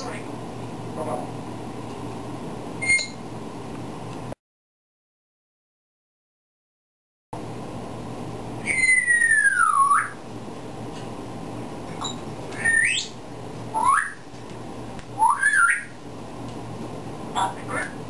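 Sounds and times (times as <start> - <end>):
parrot whistling: 2.8 - 3.2, 8.6 - 10.2, 12.0 - 14.2, 15.2 - 16.0.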